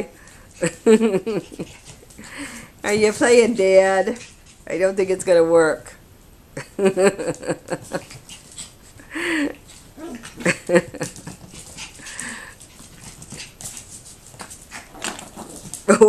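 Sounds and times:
dogs yapping and crying: 9.8s - 10.5s.

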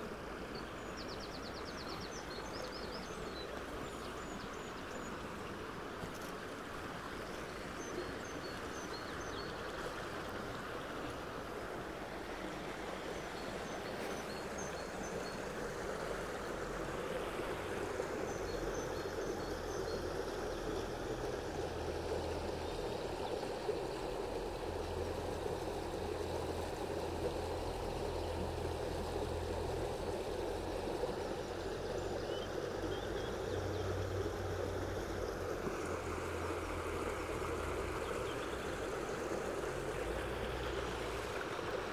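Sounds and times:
stream babbling over stones: 0.0s - 41.9s.

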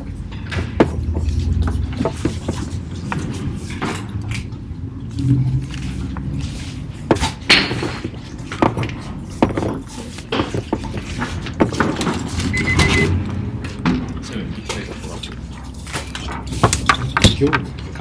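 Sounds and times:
short high beep: 12.5s - 13.1s.

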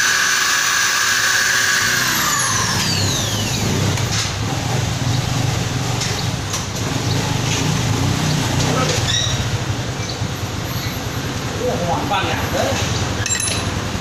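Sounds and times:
electric drill drilling metal: 0.0s - 3.7s.

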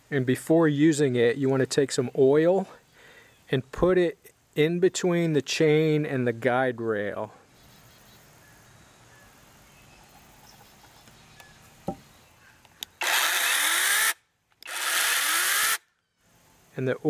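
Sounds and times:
mini chainsaw whining: 13.0s - 15.9s.

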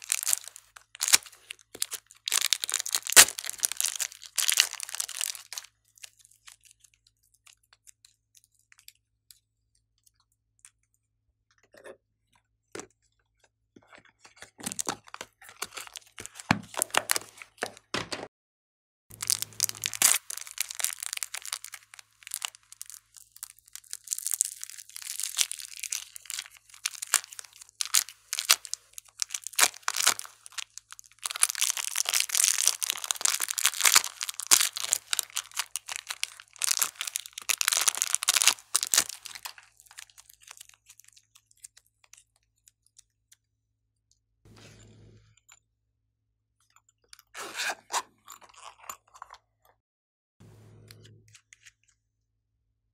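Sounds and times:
modelling clay tearing: 0.0s - 6.6s, 19.1s - 42.1s
plastic film crinkling: 0.0s - 6.8s, 14.7s - 17.6s, 19.1s - 41.8s.

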